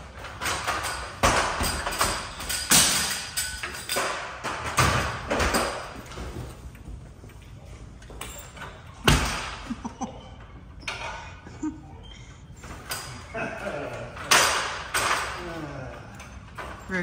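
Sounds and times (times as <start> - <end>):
aluminium ladder clattering: 0.0 - 7.4, 12.6 - 17.0.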